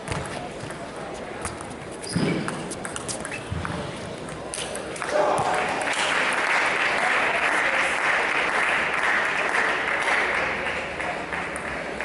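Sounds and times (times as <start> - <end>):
spectators applauding: 5.0 - 12.0.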